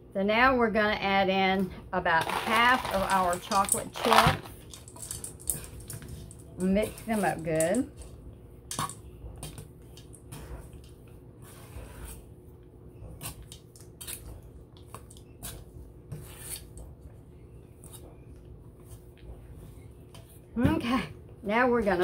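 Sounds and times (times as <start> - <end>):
dough squishing: 2.1 - 22.0
spoon scraping metal bowl: 15.4 - 16.8.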